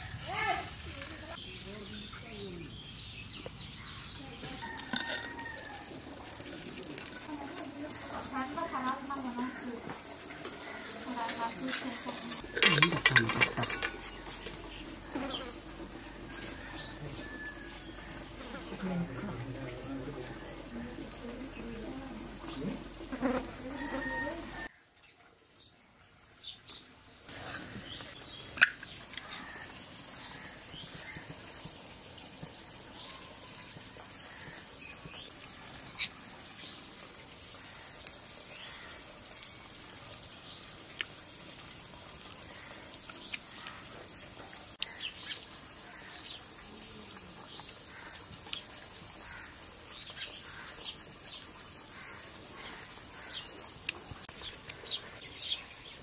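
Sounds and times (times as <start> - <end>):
birds chirping: 0.3 - 4.8, 6.6 - 25.8, 42.5 - 56.0.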